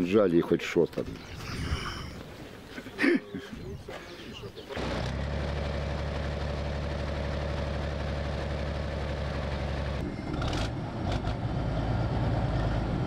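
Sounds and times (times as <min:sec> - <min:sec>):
vehicle engine idling: 0:04.5 - 0:10.0.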